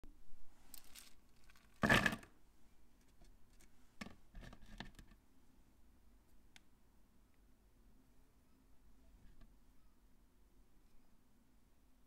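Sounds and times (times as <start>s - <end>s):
plastic pieces clattering: 0.7s - 2.3s.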